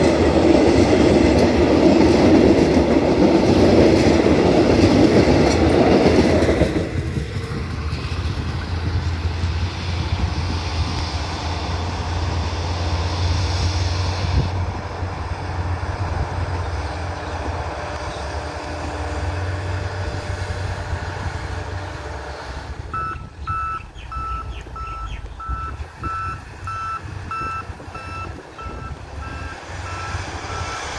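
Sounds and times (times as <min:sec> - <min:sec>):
train rumble: 0:00.0 - 0:30.9
reversing alarm beeping: 0:22.9 - 0:30.9.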